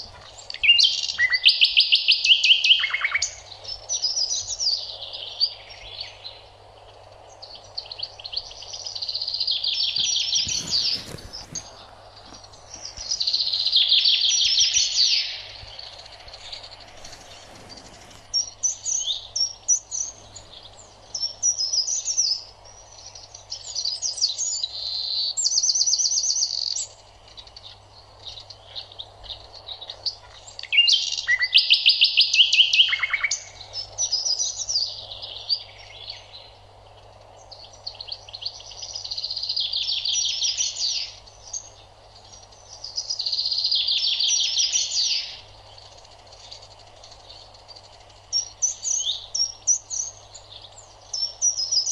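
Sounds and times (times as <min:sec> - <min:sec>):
faint low hum: 0:00.0 - 0:25.6
songbirds chirping and trilling: 0:00.0 - 0:51.9.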